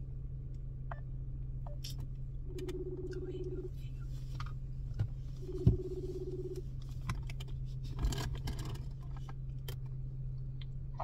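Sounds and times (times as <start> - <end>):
steady low hum: 0.0 - 11.0
phone ringback tone: 2.5 - 3.6, 5.5 - 6.6.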